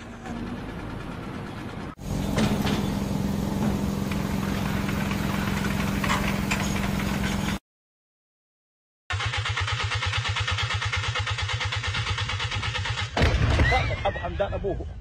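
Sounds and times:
machinery engine running: 0.0 - 7.6.

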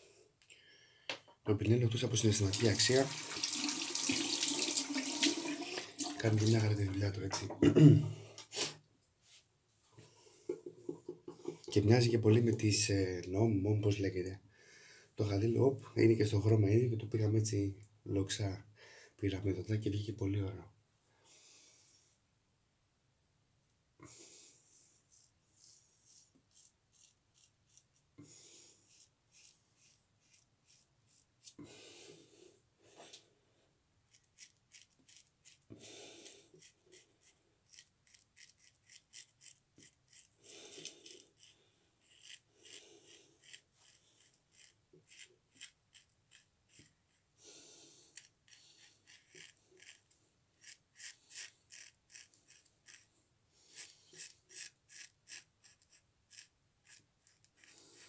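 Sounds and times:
razor scraping beard stubble: 25.0 - 31.6, 34.1 - 47.2, 48.0 - 53.1, 53.7 - 58.0.

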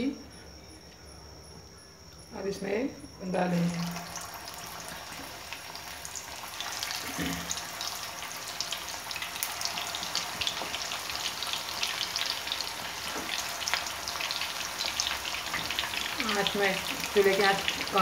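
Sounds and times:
meatballs deep-frying in oil: 3.4 - 18.0.

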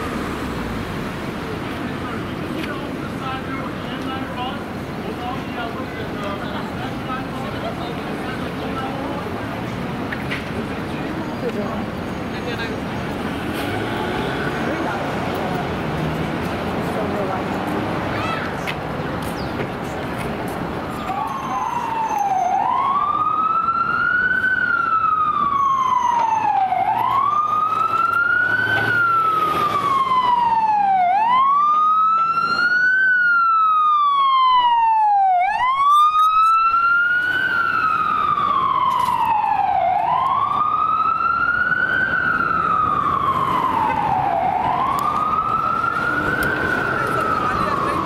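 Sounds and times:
street traffic: 0.0 - 48.0
ambulance siren wailing: 20.7 - 48.0.

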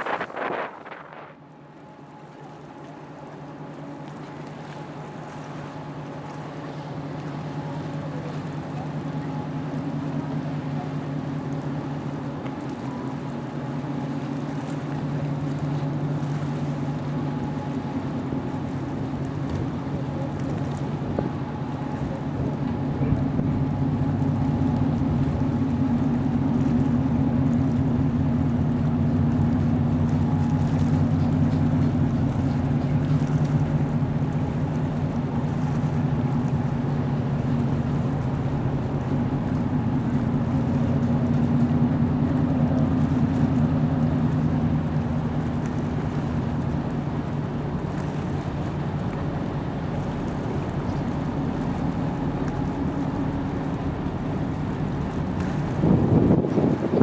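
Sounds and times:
ship engines droning: 0.0 - 57.0.

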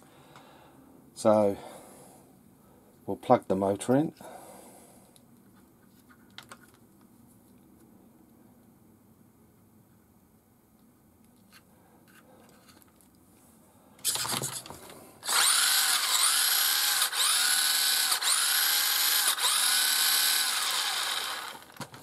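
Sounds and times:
electric motor and gears whining: 14.0 - 22.0.

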